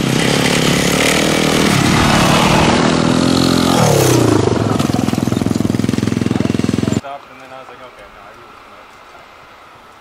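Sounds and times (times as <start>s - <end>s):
dirt bike engine passing: 0.0s - 7.0s.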